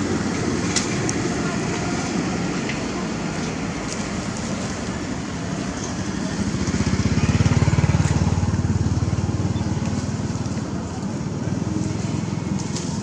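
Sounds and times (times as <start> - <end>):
outdoor noise: 0.0 - 13.0
vehicle engine passing: 5.6 - 13.0.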